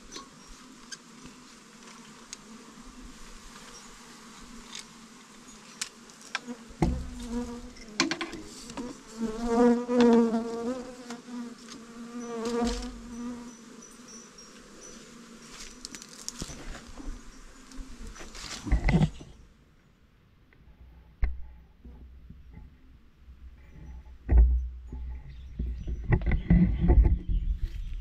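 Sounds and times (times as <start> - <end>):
bees buzzing: 0.3 - 18.8.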